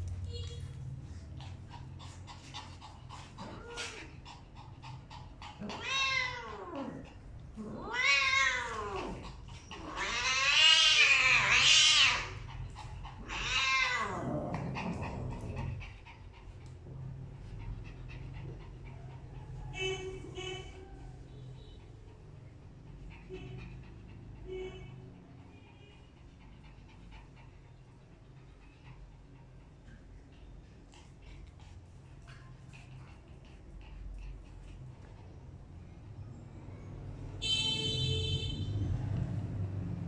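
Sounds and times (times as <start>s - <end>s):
cat yowling: 5.5s - 14.5s.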